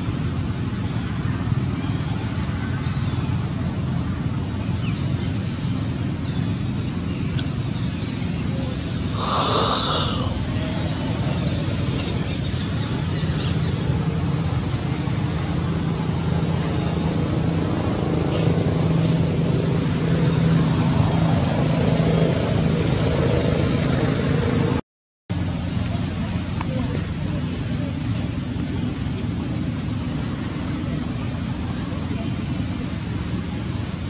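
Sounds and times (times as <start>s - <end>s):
steady low hum: 0.0s - 23.2s
outdoor background noise: 0.0s - 34.0s.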